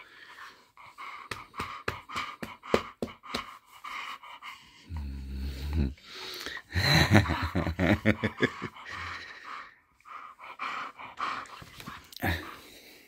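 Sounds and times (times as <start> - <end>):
dog grumbling growl: 4.9 - 6.0.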